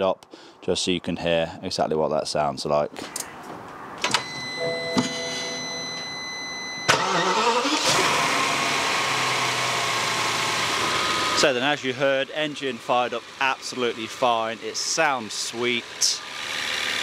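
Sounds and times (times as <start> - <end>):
car engine starting and idling: 4.1 - 17.0.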